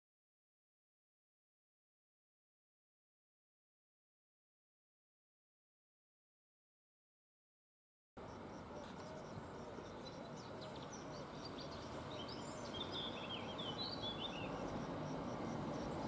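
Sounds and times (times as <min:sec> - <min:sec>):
birds chirping: 0:08.2 - 0:16.0
train rumbling: 0:11.7 - 0:16.0.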